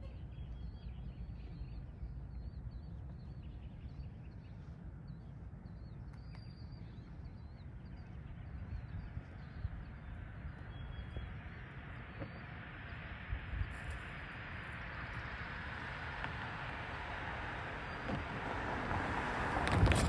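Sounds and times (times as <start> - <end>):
small birds chirping: 0.0 - 18.4
low steady rumble: 0.0 - 20.0
car approaching: 9.8 - 20.0.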